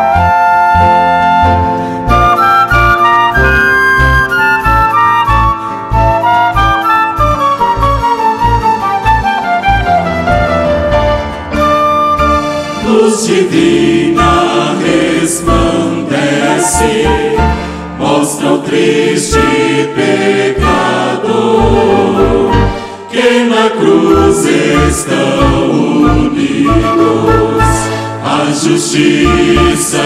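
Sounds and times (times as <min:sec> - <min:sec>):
keyboard: 0:00.0 - 0:30.0
choir singing: 0:12.7 - 0:30.0
men singing a hymn: 0:12.8 - 0:30.0.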